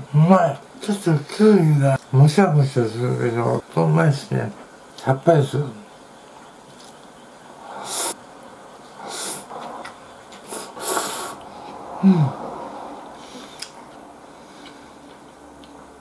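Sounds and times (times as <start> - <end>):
person slurping noodles: 10.5 - 12.5
low voiced grunt: 12.0 - 12.4.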